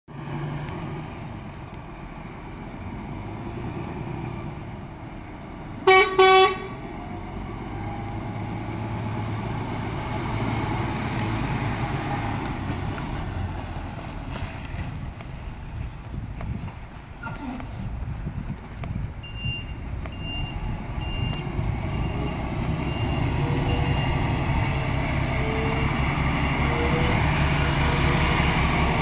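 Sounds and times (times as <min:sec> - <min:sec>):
truck diesel engine passing: 0:00.1 - 0:29.0
truck horn blasts: 0:05.8 - 0:06.8.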